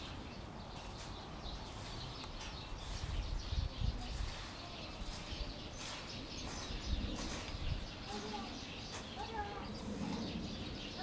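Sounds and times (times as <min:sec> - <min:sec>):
bird chirps: 0:00.0 - 0:11.0
low microphone rumble: 0:01.4 - 0:11.0.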